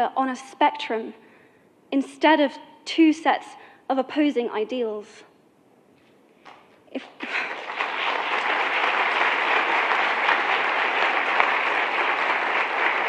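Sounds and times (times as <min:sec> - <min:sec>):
audience clapping: 0:07.0 - 0:13.0.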